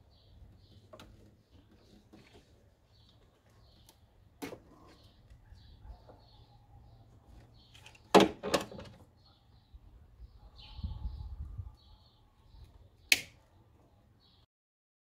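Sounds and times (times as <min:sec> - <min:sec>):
faint bird chirps: 0:09.2 - 0:14.5
sharp snaps from wiring work: 0:13.1 - 0:13.5.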